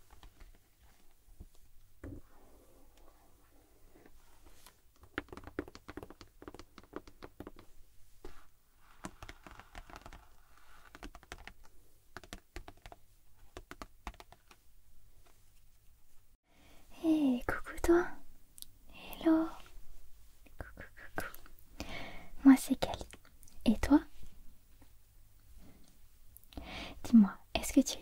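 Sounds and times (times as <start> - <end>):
soft rubbing on plastic: 0.0 - 11.5
fingernails tapping on plastic wrap: 5.0 - 7.7, 9.0 - 11.5, 12.2 - 14.4.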